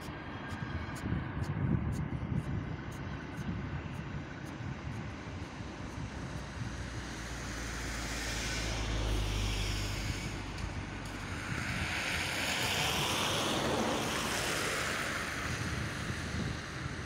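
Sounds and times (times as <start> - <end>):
diesel engine humming: 5.3 - 16.4
rushing hiss: 6.8 - 16.8.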